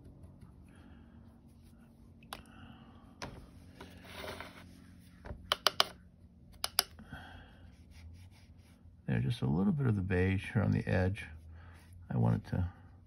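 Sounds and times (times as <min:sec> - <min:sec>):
painting tools clicking and tapping: 0:05.4 - 0:06.0, 0:06.6 - 0:07.0
brush scrubbing on palette: 0:07.7 - 0:08.9.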